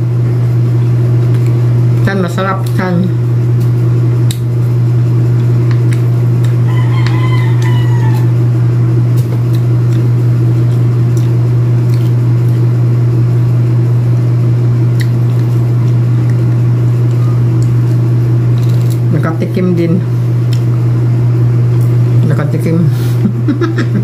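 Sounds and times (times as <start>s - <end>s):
loud low hum: 0.0s - 24.0s
small clicks of peeling fruit: 0.8s - 1.6s, 3.6s - 4.5s, 15.0s - 17.8s
rooster crowing: 6.6s - 8.6s.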